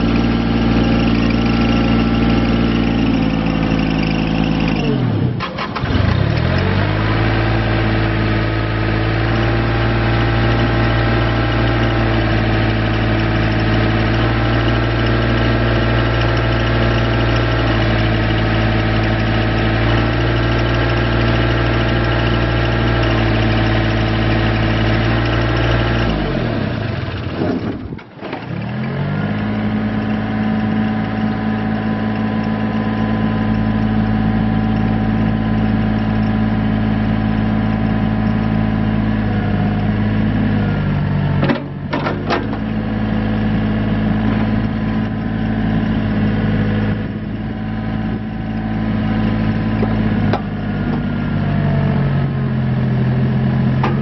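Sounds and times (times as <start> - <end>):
diesel engine idling: 0.0 - 7.2, 28.7 - 54.0.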